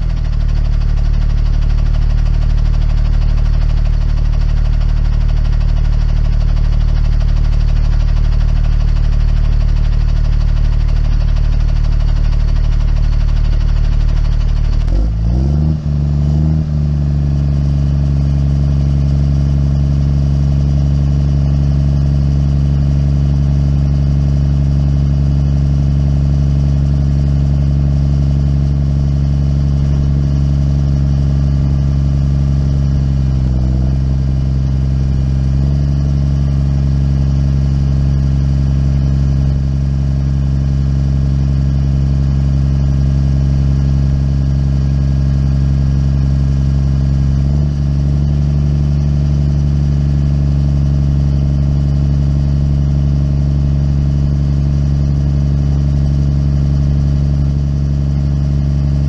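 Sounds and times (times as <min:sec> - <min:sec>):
small engine running: 0:00.0 - 0:16.9.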